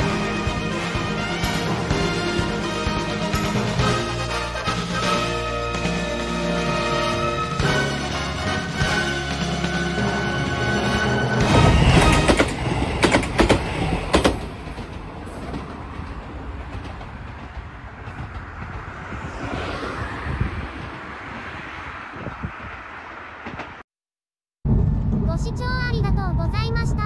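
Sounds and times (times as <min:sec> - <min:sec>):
outdoor road noise: 0:00.0 - 0:23.9, 0:24.6 - 0:27.0
vehicle passing: 0:15.4 - 0:23.8.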